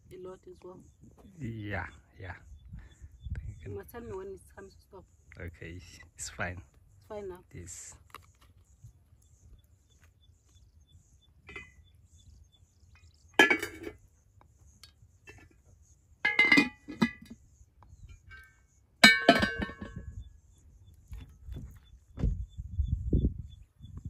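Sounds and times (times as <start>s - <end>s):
dishes and utensils clinking: 16.2s - 17.3s, 19.0s - 20.0s.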